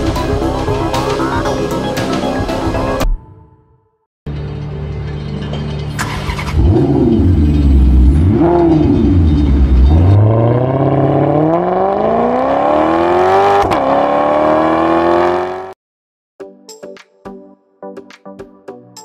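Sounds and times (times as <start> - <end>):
car engine revving: 6.0 - 15.8.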